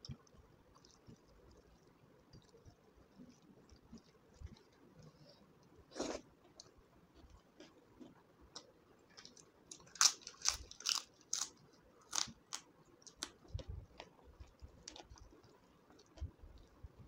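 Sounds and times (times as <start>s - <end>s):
chewing crispy chips: 5.9s - 16.8s.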